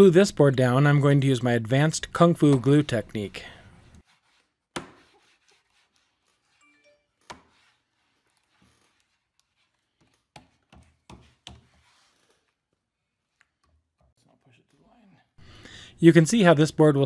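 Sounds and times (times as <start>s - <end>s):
hand rubbing glue on wood: 2.5s - 6.6s, 7.4s - 13.6s.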